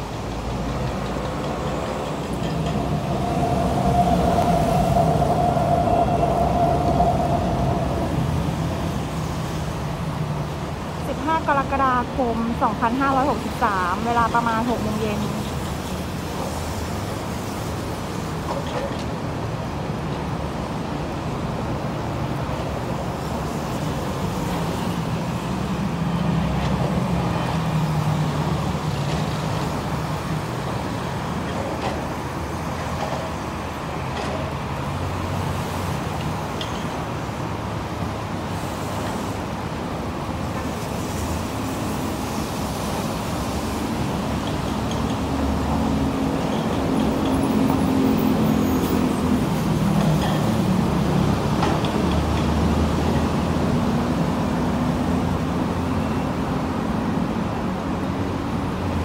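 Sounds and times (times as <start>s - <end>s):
road traffic: 0.0s - 59.0s.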